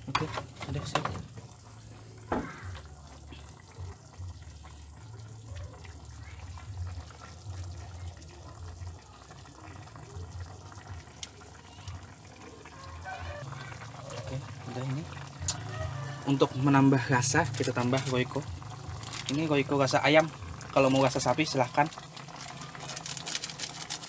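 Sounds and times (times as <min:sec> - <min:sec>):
soup bubbling: 0:00.0 - 0:24.0.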